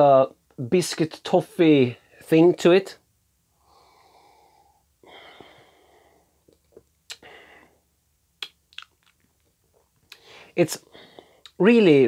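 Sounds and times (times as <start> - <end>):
man breathing out: 3.6 - 6.4, 7.2 - 7.8, 10.2 - 11.5
mouth clicks and lip smacks: 6.4 - 7.3, 8.4 - 10.3.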